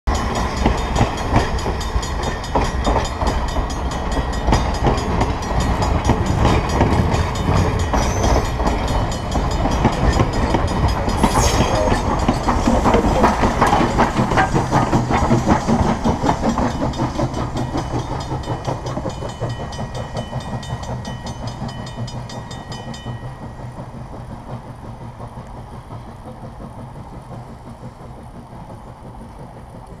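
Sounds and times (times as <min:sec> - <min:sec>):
steam train passing: 0:00.1 - 0:30.0
wheels clicking over rail joints: 0:12.2 - 0:30.0.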